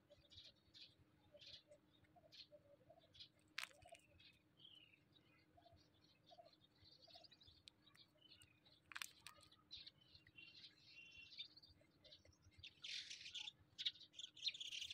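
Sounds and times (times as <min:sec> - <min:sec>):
faint bird chirps: 0:00.0 - 0:14.9
soft clicks and crinkles: 0:03.1 - 0:04.8, 0:06.8 - 0:10.7.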